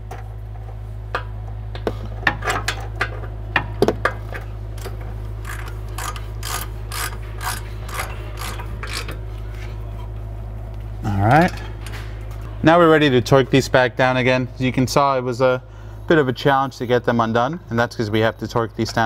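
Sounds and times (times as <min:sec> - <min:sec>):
wrench ratchet clicks: 0:05.4 - 0:09.2.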